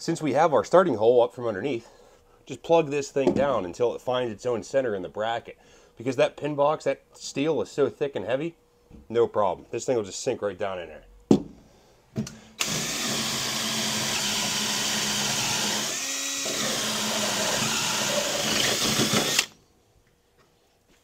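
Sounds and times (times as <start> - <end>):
power drill cutting steel: 12.6 - 19.6.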